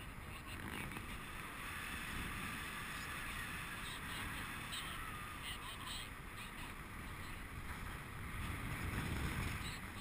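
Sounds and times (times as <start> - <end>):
airflow buffeting microphone: 0.0 - 10.0.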